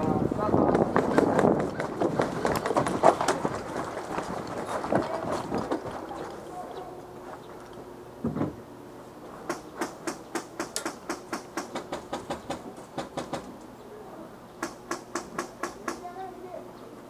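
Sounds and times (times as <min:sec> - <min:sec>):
sharp taps: 0:14.6 - 0:16.1.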